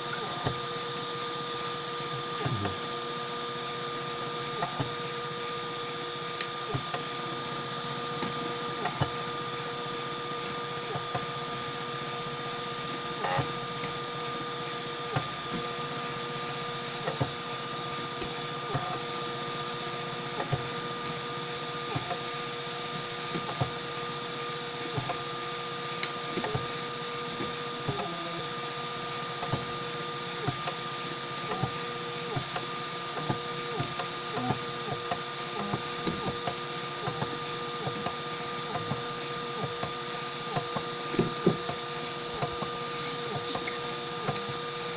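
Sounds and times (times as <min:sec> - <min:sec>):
stepper motors humming: 0:00.0 - 0:21.2, 0:33.1 - 0:44.9.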